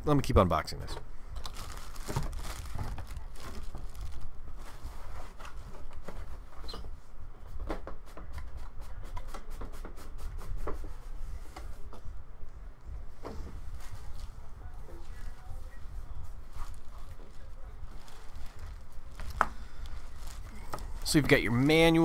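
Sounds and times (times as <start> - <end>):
plastic wrap and foam crinkling: 1.4 - 5.9, 15.0 - 22.0.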